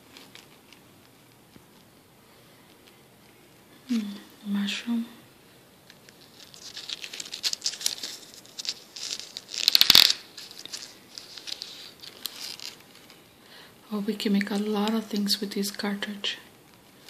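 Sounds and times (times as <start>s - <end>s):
paper pages rustling: 0.0s - 2.0s, 5.9s - 13.3s.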